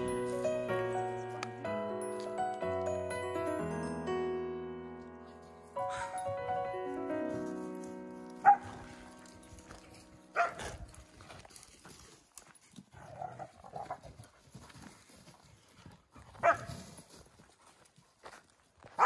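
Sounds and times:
piano music: 0:00.0 - 0:11.4
dog barking: 0:08.4 - 0:08.8, 0:10.4 - 0:10.8, 0:16.4 - 0:16.7.

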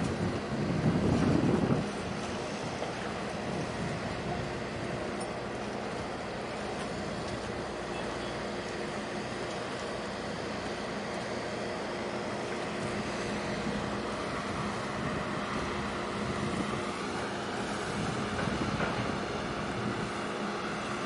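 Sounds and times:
wind noise on microphone: 0:00.0 - 0:05.2, 0:12.8 - 0:20.4
ship engines droning: 0:00.0 - 0:21.0.

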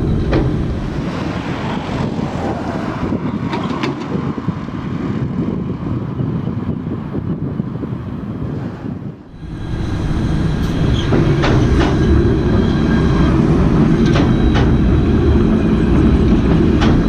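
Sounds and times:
tram rumbling on rails: 0:00.0 - 0:17.0
wheels clicking over rail joints: 0:02.5 - 0:04.8, 0:09.7 - 0:17.0.

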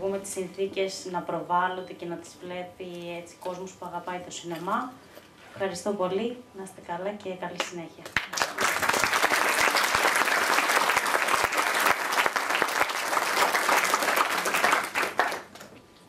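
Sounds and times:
audience applauding: 0:08.2 - 0:15.7.

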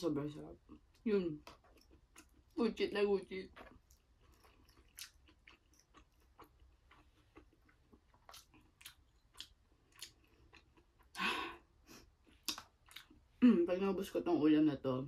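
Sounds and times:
person chewing: 0:00.6 - 0:02.6, 0:03.5 - 0:13.4.

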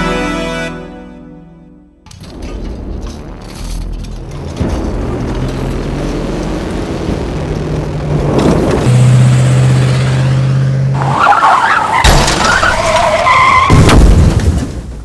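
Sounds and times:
pickup truck engine drone: 0:02.2 - 0:12.0
tyres skidding with squeal: 0:08.4 - 0:13.9.

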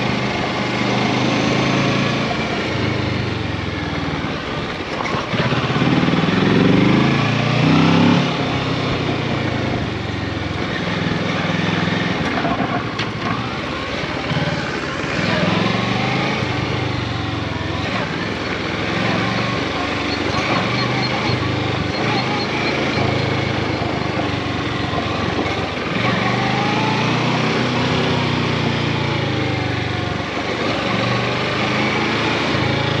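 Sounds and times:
motorcycle engine running: 0:00.0 - 0:33.0.

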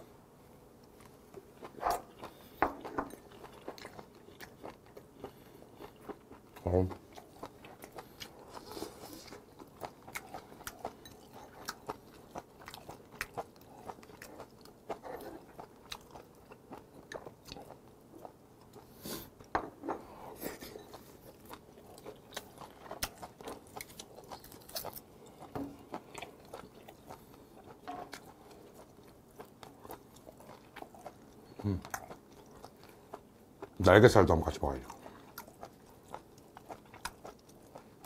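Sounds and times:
chewing and crunching: 0:00.8 - 0:19.5, 0:20.1 - 0:38.0.

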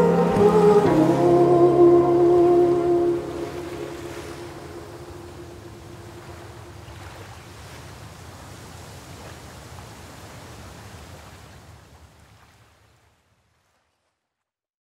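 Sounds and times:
held music note: 0:00.0 - 0:06.2
surf washing on beach: 0:00.0 - 0:13.8.

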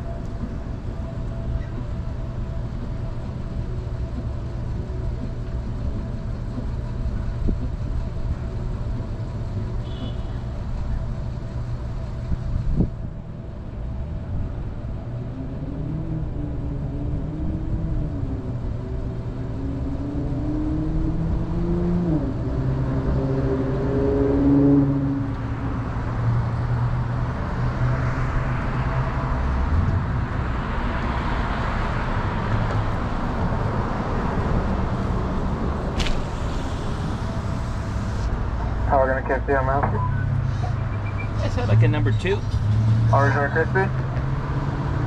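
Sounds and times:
car engine driving slowly: 0:00.0 - 0:45.0
steady rushing noise: 0:25.8 - 0:39.9.

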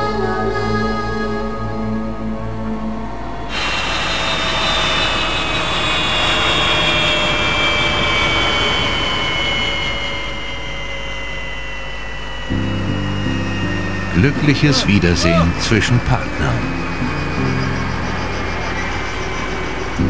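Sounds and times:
music: 0:00.0 - 0:03.6, 0:12.4 - 0:20.0
helicopter turbine engines spooling down: 0:00.9 - 0:20.0.

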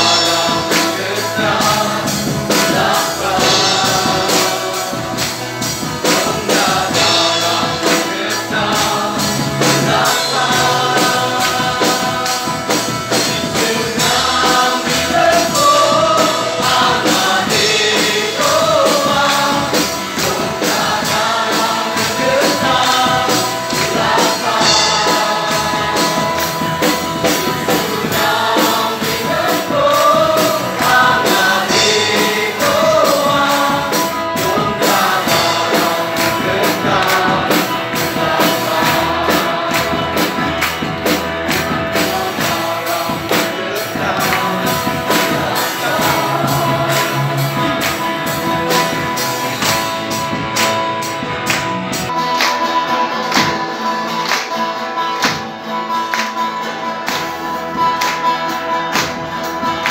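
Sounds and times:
acoustic guitar: 0:00.0 - 0:59.9
group singing gospel song: 0:00.0 - 0:59.9
hand claps: 0:00.7 - 0:01.1, 0:05.2 - 0:06.2, 0:35.7 - 0:42.5, 0:43.3 - 0:45.3, 0:46.9 - 0:59.9.

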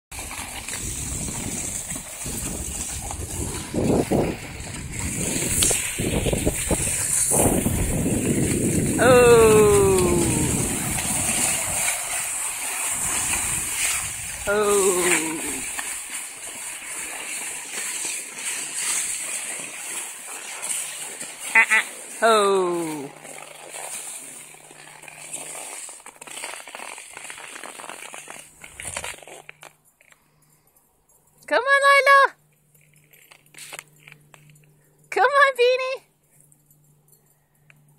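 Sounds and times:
skis hissing over snow: 0:00.2 - 0:29.7
wind on microphone: 0:00.6 - 0:15.6.

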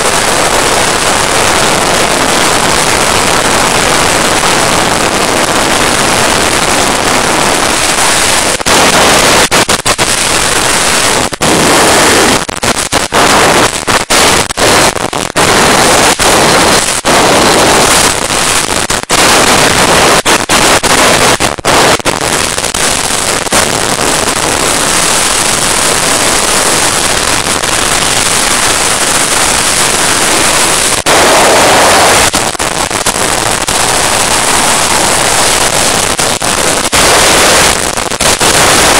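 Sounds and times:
wind rushing over microphone: 0:00.0 - 0:38.9.

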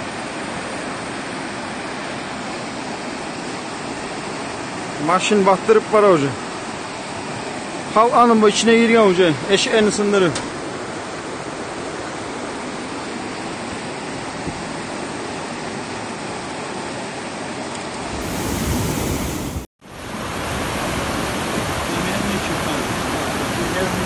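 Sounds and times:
floodwater rushing: 0:18.1 - 0:24.0.

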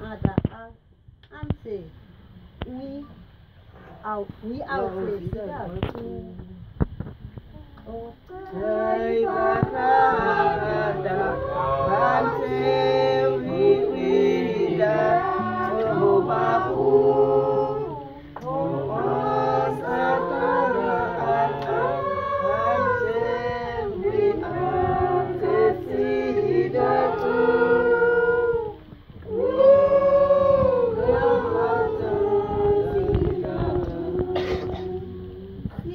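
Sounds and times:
women and children singing: 0:07.8 - 0:35.9.

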